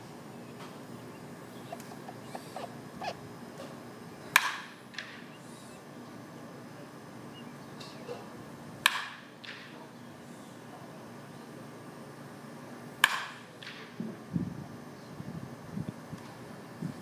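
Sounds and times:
bat hitting baseball: 4.4 - 5.2.

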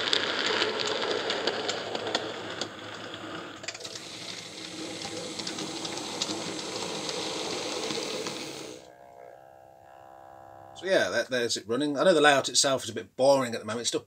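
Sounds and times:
wheels clicking on track: 0.0 - 8.9
model train motor whirring: 0.0 - 9.0.

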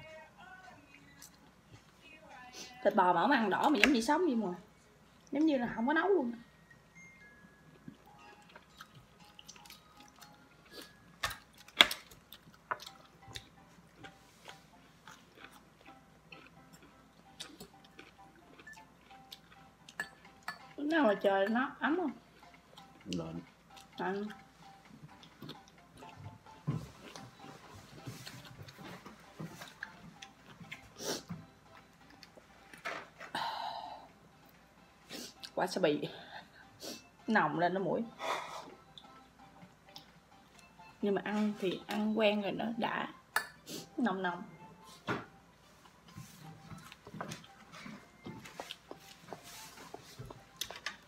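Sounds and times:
chewing: 7.9 - 20.8, 22.3 - 32.8, 46.1 - 49.7
cutlery clinking on a plate: 19.9 - 20.8.

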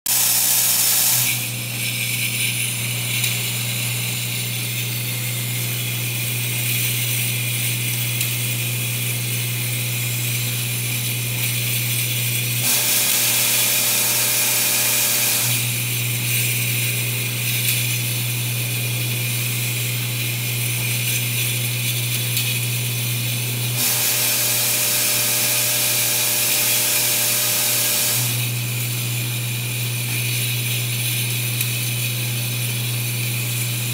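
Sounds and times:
bright hiss: 0.1 - 8.4, 12.4 - 15.9
bowl feeder humming: 0.1 - 33.9
glass vials rattling: 1.6 - 9.5.

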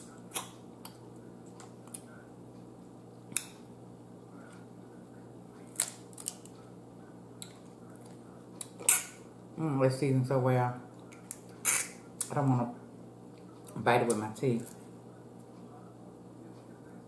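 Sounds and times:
faint steady hum: 0.0 - 17.0
crab shells cracking: 5.7 - 6.6.

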